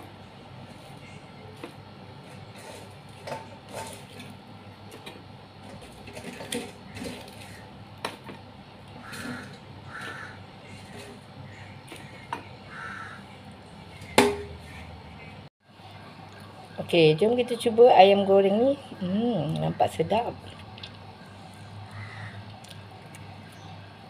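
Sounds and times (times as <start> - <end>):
sharp knock against dish: 14.2 - 14.5.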